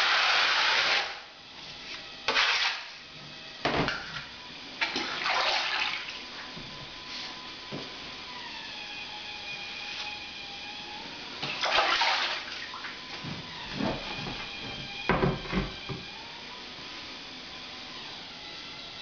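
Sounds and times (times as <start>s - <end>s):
water sloshing: 11.4s - 13.0s.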